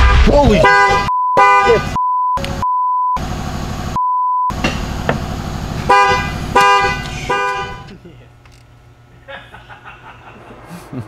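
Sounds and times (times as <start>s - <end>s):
car horn honking: 0.0s - 2.6s, 4.5s - 7.9s
censor bleep: 1.1s - 3.2s, 4.0s - 4.6s.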